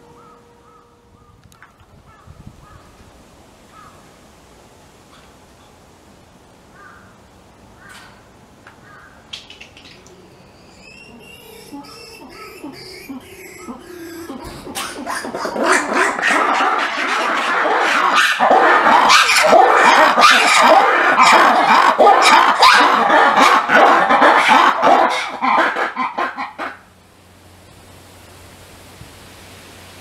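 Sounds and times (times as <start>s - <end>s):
chorus of animal calls: 8.9s - 26.9s.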